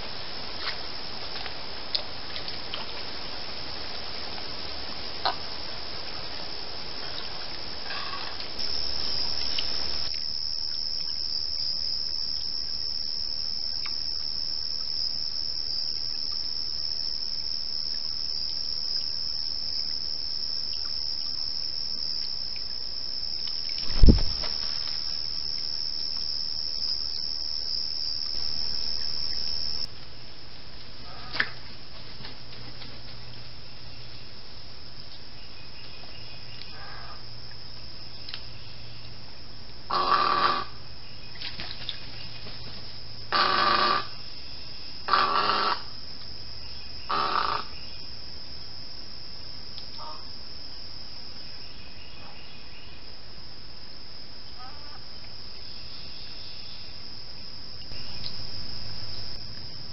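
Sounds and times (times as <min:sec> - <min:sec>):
crickets trilling: 0:00.0 - 0:59.9
loud low thump: 0:23.8 - 0:24.5.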